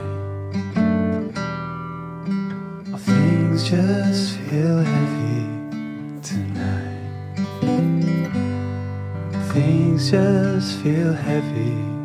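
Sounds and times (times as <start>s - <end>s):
acoustic guitar slow song: 0.0s - 12.0s.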